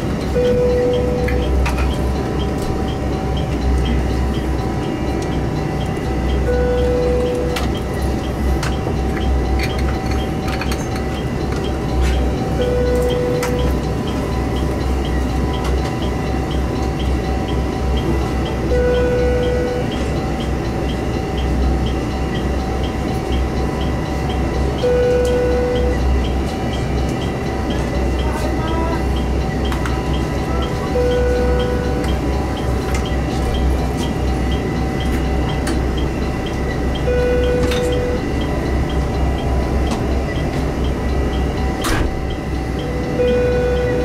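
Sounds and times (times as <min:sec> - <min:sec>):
train rumbling and whining: 0:00.0 - 0:44.0
short electronic beep: 0:37.0 - 0:38.3, 0:41.8 - 0:44.0.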